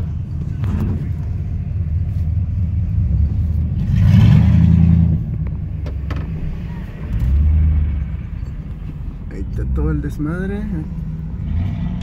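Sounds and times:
road noise inside vehicle: 0.0s - 12.0s
vehicle engine rumble: 0.0s - 12.0s.

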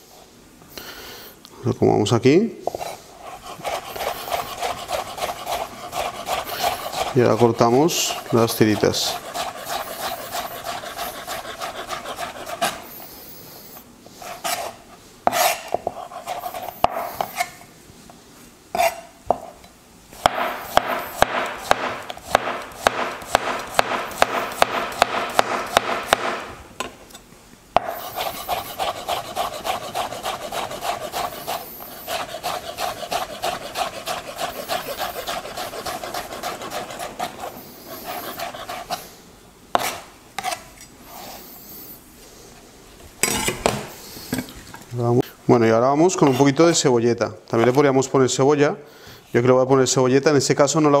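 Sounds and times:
knife chopping on cutting board: 3.4s - 12.8s, 20.2s - 26.5s, 27.8s - 37.5s, 39.8s - 40.6s.

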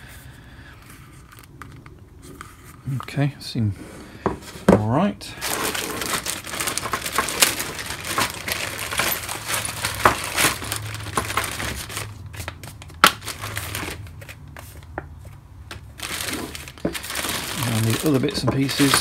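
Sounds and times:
plastic bags crinkling: 5.3s - 14.9s, 15.7s - 19.0s.

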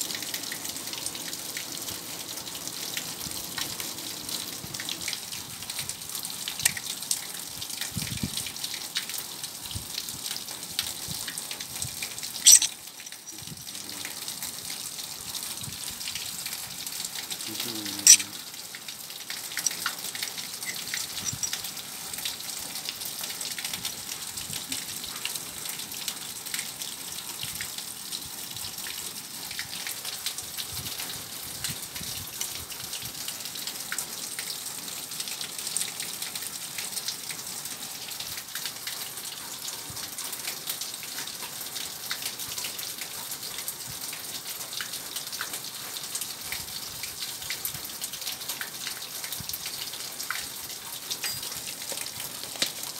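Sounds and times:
small crackles and ticks: 0.0s - 27.8s, 38.2s - 52.9s
rushing water hiss: 0.0s - 39.2s.

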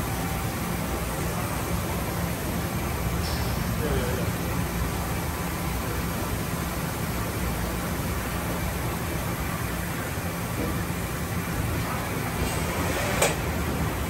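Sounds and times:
panel sliding open with clack: 12.4s - 13.5s.

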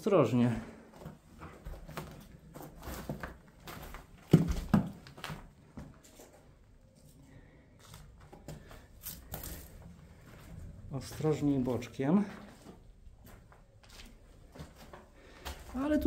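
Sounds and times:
footsteps on debris: 0.7s - 7.2s, 7.8s - 16.0s.

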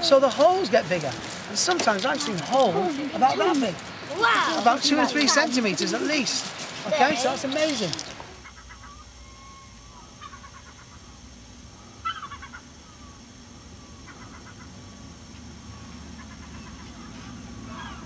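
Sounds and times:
low steady hum: 0.0s - 18.0s
short bird calls: 8.3s - 11.1s, 11.8s - 13.2s, 13.8s - 14.8s.

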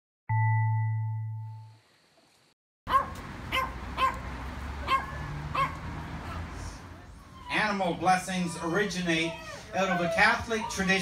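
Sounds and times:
outdoor background noise: 1.5s - 11.0s
dog barking: 2.9s - 4.2s, 4.8s - 6.5s.

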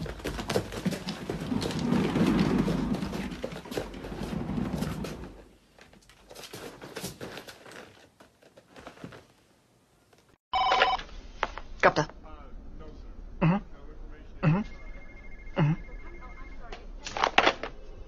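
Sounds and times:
cat wheel rolling rumble: 0.0s - 8.0s.

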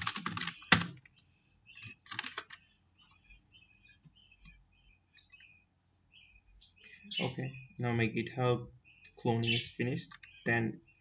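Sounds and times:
computer keyboard keystrokes: 0.0s - 1.0s, 2.0s - 2.6s
high bird chirps: 0.3s - 8.0s, 8.7s - 11.0s.

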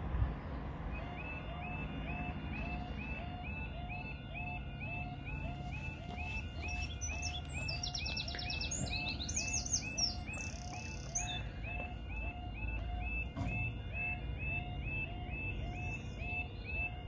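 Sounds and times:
level crossing warbling alarm: 0.8s - 17.0s
songbird trilling: 6.6s - 11.5s.

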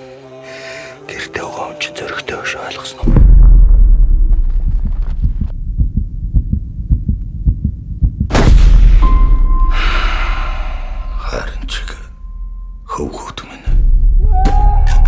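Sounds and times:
deep pulsing thuds: 3.0s - 9.8s, 13.7s - 15.0s
low rumble: 3.0s - 12.9s
sharp gunshot-like boom: 3.1s - 4.5s, 8.3s - 9.6s
high ringing tone: 9.0s - 12.9s.

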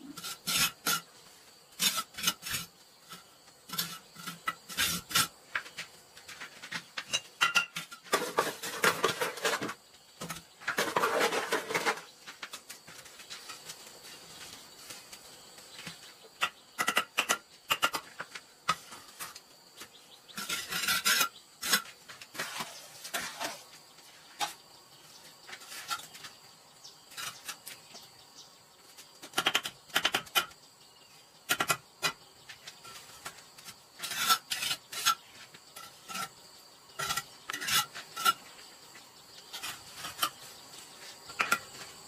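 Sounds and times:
trowel scraping through mortar: 0.1s - 1.1s, 1.8s - 5.4s, 10.7s - 12.1s, 20.3s - 23.7s, 27.1s - 27.8s, 34.0s - 36.4s, 37.0s - 38.5s.

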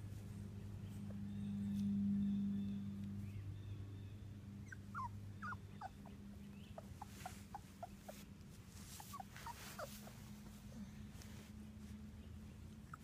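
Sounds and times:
puppies whimpering: 4.6s - 10.8s.

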